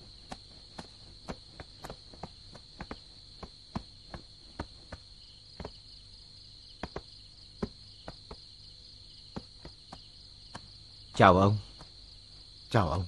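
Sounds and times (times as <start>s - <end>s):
footsteps: 0.0s - 5.9s, 6.8s - 8.5s, 9.3s - 12.0s
crickets chirring: 0.0s - 13.0s.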